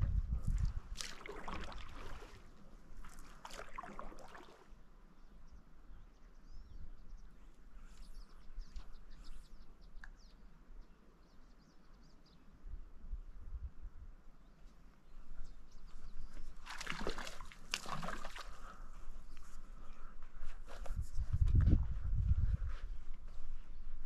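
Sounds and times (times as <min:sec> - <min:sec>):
paddle splashing in water: 0:00.9 - 0:04.7, 0:16.6 - 0:18.8
small birds chirping: 0:03.5 - 0:12.6, 0:14.4 - 0:21.5.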